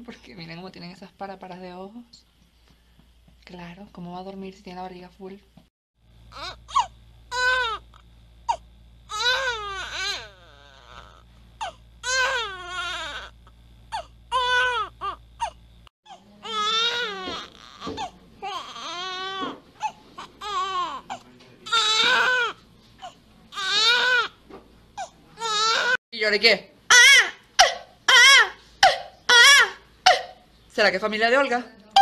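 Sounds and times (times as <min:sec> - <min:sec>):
low hum: 0:06.0 - 0:15.9
infant crying: 0:06.3 - 0:07.8, 0:08.5 - 0:24.4, 0:25.0 - 0:26.0, 0:26.9 - 0:30.4.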